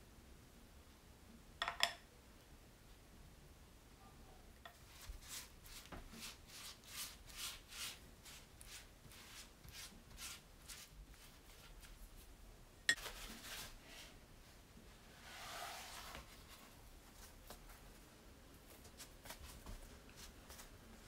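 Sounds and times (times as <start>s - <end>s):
pastry brush swishing on dough: 4.8s - 12.3s, 13.0s - 14.2s, 15.1s - 18.0s.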